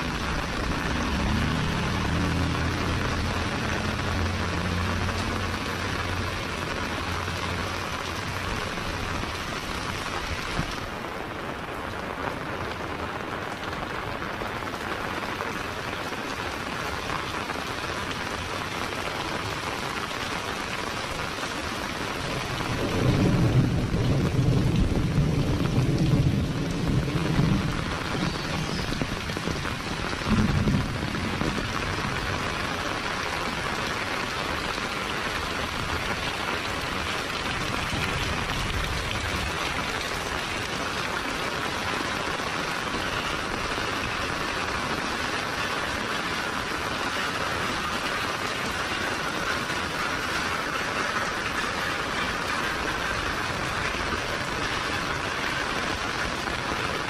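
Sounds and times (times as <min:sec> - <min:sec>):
low rumble of thunder: 0:00.0 - 0:06.4, 0:22.3 - 0:33.0
heavy rain on street and roofs: 0:00.0 - 0:57.0.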